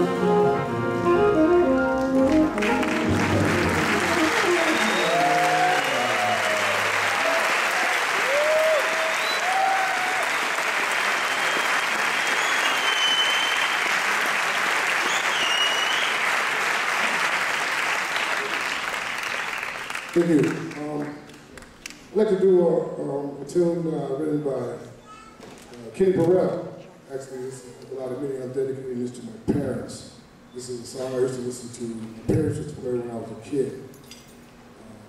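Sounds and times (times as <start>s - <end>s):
jazz band playing: 0.0s - 6.3s
audience applauding: 1.7s - 22.0s
shouts and whistles: 4.6s - 6.8s, 8.2s - 10.5s, 11.2s - 13.9s, 15.0s - 16.3s.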